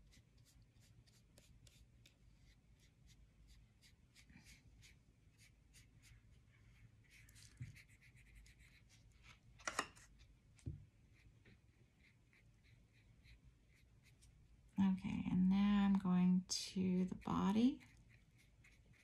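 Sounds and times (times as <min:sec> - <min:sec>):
paintbrush strokes on paper: 0:00.0 - 0:09.4, 0:11.0 - 0:14.4, 0:17.0 - 0:19.0.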